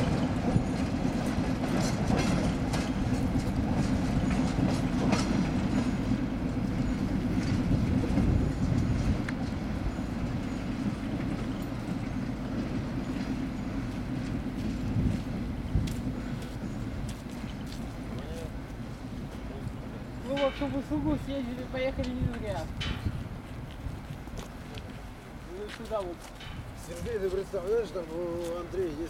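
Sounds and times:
wheels clicking over rails: 0:00.0 - 0:16.8
locomotive engine drone: 0:00.0 - 0:21.9.

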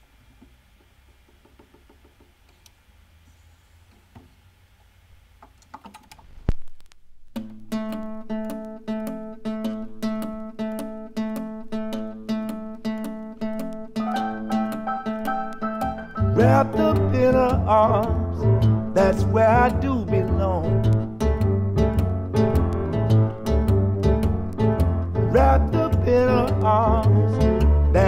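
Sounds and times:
stylus thump on record: 0:00.4 - 0:02.4
small clicks: 0:02.4 - 0:02.8, 0:05.4 - 0:15.9
plucked acoustic guitar: 0:07.3 - 0:28.0.

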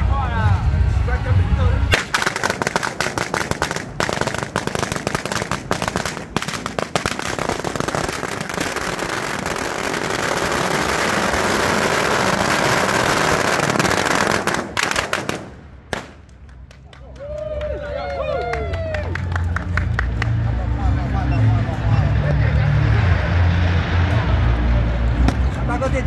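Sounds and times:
firecrackers crackling: 0:01.9 - 0:20.8.

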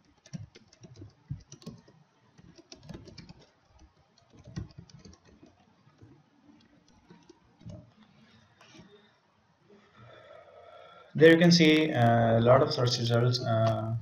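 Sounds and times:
keyboard typing clicks: 0:00.0 - 0:06.2, 0:06.8 - 0:07.9.

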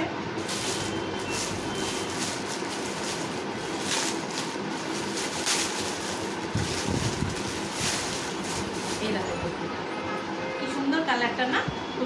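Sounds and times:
plastic packaging rustling: 0:00.4 - 0:09.5.

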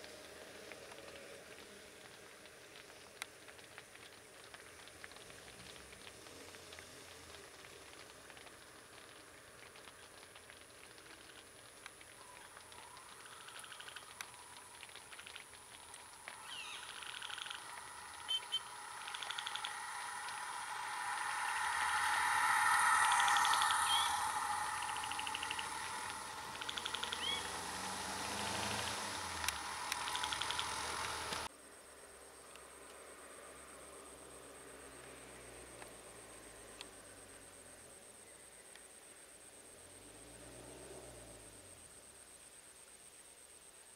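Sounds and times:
light ticks: 0:00.0 - 0:31.5
faint low hum: 0:00.0 - 0:43.9
faint outdoor hiss: 0:00.0 - 0:43.9
insect-like drone: 0:00.0 - 0:43.9
upswept chirps: 0:11.1 - 0:31.5
thin high whine: 0:12.1 - 0:31.5
short rapid bird trills: 0:16.4 - 0:19.8, 0:26.6 - 0:27.6.

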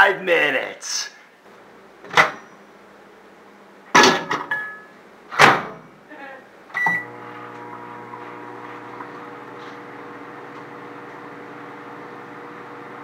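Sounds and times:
microwave oven humming: 0:06.5 - 0:13.0.

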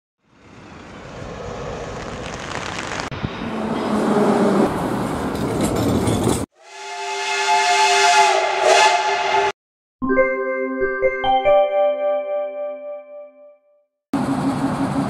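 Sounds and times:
passing train rushing: 0:00.3 - 0:09.6, 0:14.2 - 0:15.0
steam locomotive chime whistle: 0:06.6 - 0:09.5
electronic keyboard jingle: 0:10.0 - 0:13.8.

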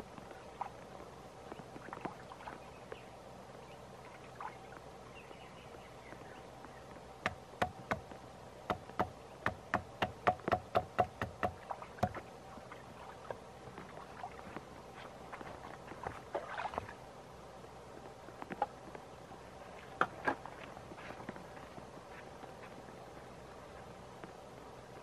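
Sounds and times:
firewood being chopped: 0:07.2 - 0:08.1, 0:08.7 - 0:12.2.

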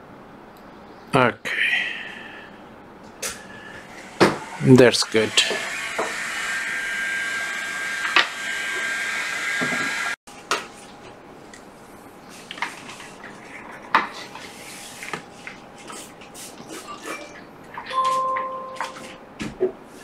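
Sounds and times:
electric whir with high tone: 0:03.8 - 0:10.2.

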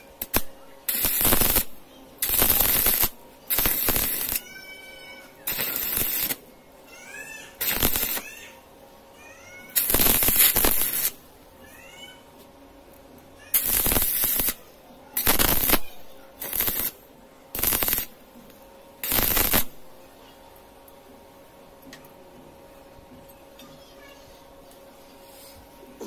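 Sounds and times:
welding arc crackling and sizzling: 0:00.0 - 0:06.5, 0:07.5 - 0:08.6, 0:09.6 - 0:11.4, 0:13.5 - 0:20.0.

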